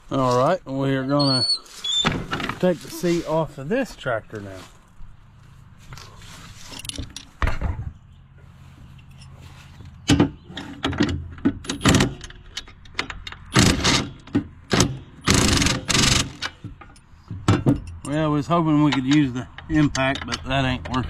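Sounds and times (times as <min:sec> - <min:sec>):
metal knocks of tool handling: 0:06.7 - 0:08.0, 0:08.8 - 0:15.2, 0:16.4 - 0:21.0
impact wrench hammering: 0:13.4 - 0:16.8.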